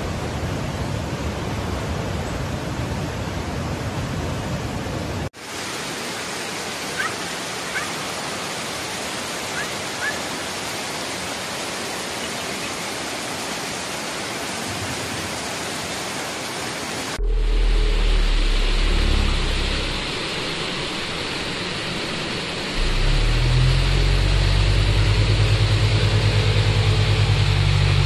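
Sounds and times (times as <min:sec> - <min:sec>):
rushing floodwater: 0:00.0 - 0:17.2.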